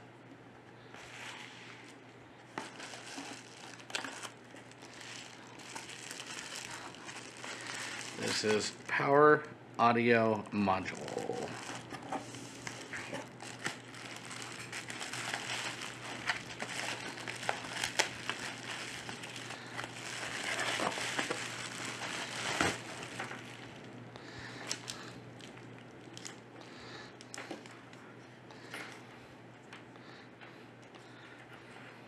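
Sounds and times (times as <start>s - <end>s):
plastic bag crinkling: 2.5s - 9.0s, 10.7s - 26.4s.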